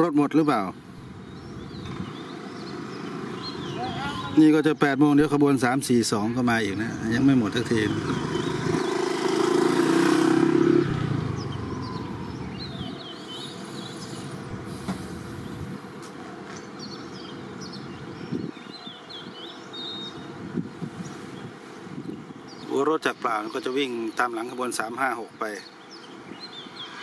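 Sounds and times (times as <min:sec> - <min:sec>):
birds chirping: 0:00.0 - 0:27.0
vehicle passing: 0:01.0 - 0:04.4, 0:06.7 - 0:18.2.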